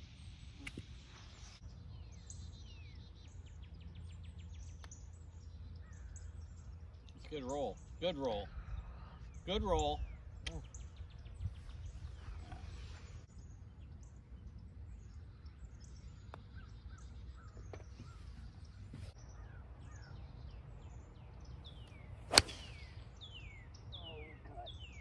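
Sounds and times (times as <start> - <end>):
birds chirping: 0.0 - 25.0
low wind rumble: 7.8 - 25.0
golf club striking ball: 22.3 - 22.9.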